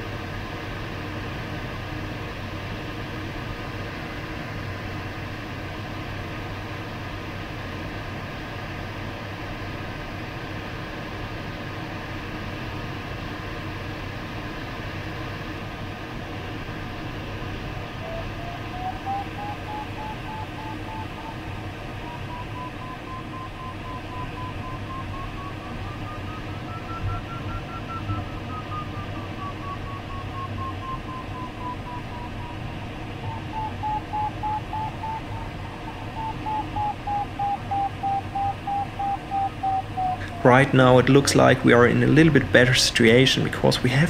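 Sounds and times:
electronic variometer tone and beeps: 0:18.0 - 0:43.2
airflow rushing in cockpit: 0:18.0 - 0:43.7.

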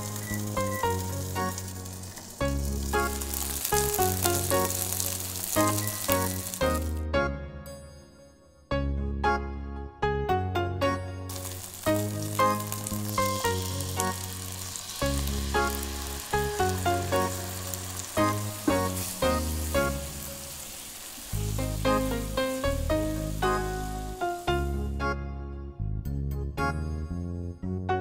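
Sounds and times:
meat sizzling in hot oil: 0:00.0 - 0:07.0, 0:11.3 - 0:24.9
background music with piano and bass: 0:00.0 - 0:28.0.

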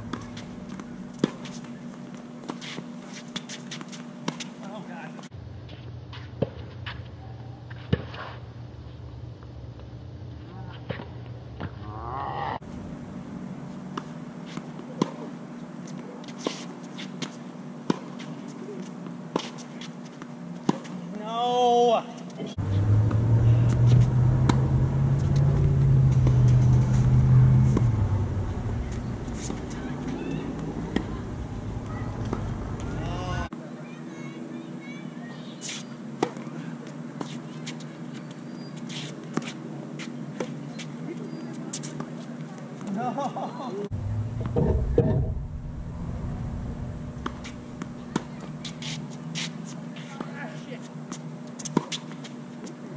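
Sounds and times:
racket striking tennis ball: 0:00.0 - 0:01.7, 0:22.6 - 0:33.1
tennis ball bouncing: 0:00.0 - 0:04.5, 0:22.6 - 0:33.3, 0:43.9 - 0:45.5, 0:47.1 - 0:49.5
steady low hum: 0:00.0 - 0:04.6, 0:12.6 - 0:21.0, 0:22.4 - 0:33.5, 0:43.8 - 0:50.2
shoes scuffing on court: 0:00.1 - 0:08.4, 0:13.6 - 0:21.0, 0:28.8 - 0:31.2, 0:35.5 - 0:42.9, 0:47.2 - 0:52.8.

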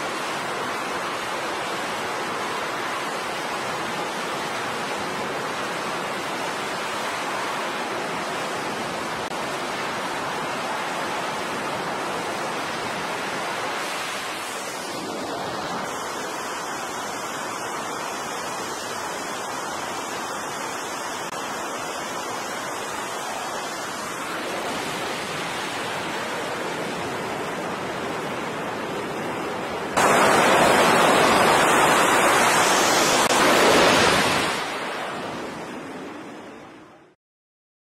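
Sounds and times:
jet engines rushing: 0:22.3 - 0:36.7
jet running up to full power: 0:30.0 - 0:34.8.

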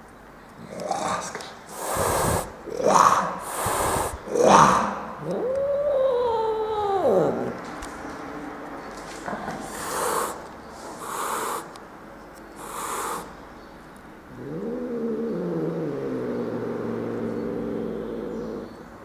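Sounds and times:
cat growling low: 0:00.6 - 0:07.6, 0:09.4 - 0:10.4, 0:11.0 - 0:11.8, 0:12.6 - 0:13.3, 0:14.3 - 0:18.9
cat hissing: 0:00.7 - 0:07.6, 0:09.6 - 0:11.8, 0:12.6 - 0:13.4, 0:14.3 - 0:18.6.

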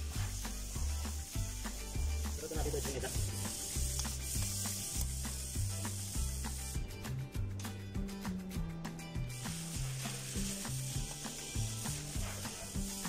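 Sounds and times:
background music with bass line: 0:00.0 - 0:13.0.

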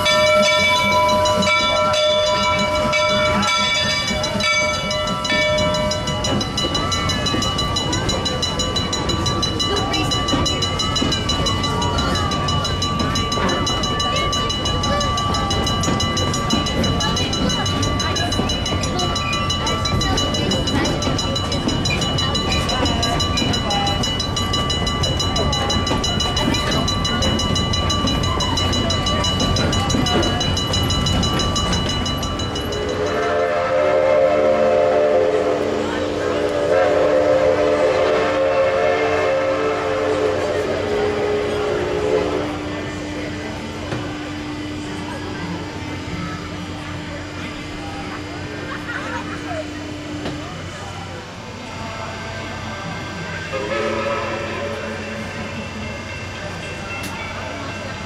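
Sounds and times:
steam train rumble and clatter: 0:00.0 - 0:58.0
steam whistle blasts: 0:33.0 - 0:42.8, 0:53.5 - 0:55.2.

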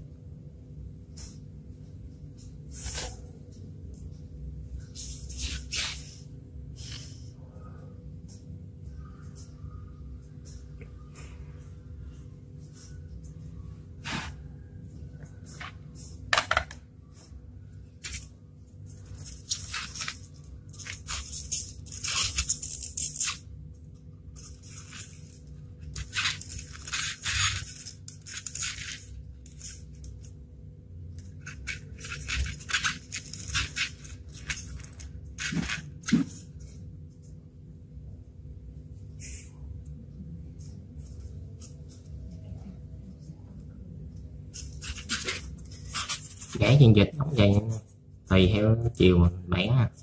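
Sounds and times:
rustling and scraping of foam: 0:02.4 - 0:03.5, 0:04.8 - 0:07.2, 0:14.0 - 0:14.6, 0:24.3 - 0:30.1, 0:31.4 - 0:36.8.

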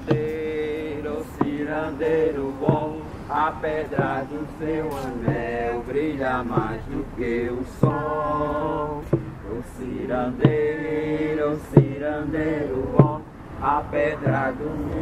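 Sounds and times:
group singing slow chant: 0:00.0 - 0:15.0
hand drum beating: 0:05.2 - 0:05.6, 0:06.4 - 0:07.0, 0:07.8 - 0:08.2, 0:09.0 - 0:09.4, 0:10.3 - 0:12.0, 0:13.0 - 0:13.2.

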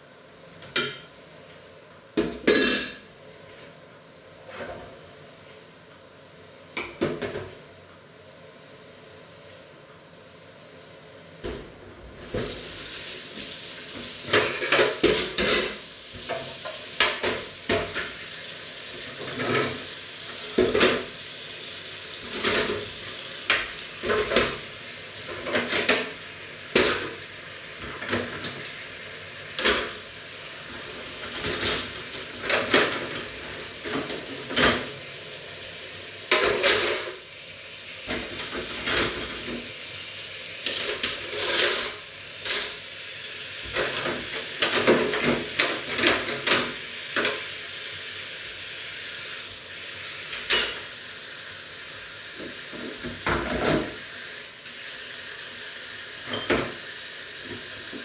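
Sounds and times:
dishes clattering in sink: 0:00.6 - 0:01.3, 0:02.2 - 0:03.1, 0:14.2 - 0:18.2, 0:20.5 - 0:21.1, 0:22.3 - 0:22.9, 0:23.5 - 0:24.7, 0:25.3 - 0:27.2, 0:29.6 - 0:30.0, 0:31.2 - 0:35.0, 0:36.3 - 0:37.2, 0:40.7 - 0:42.8, 0:43.6 - 0:47.4, 0:50.3 - 0:50.9, 0:52.4 - 0:54.0, 0:56.2 - 0:56.8
tap water running into sink: 0:22.0 - 0:28.8, 0:43.6 - 0:47.7, 0:49.4 - 0:58.0.

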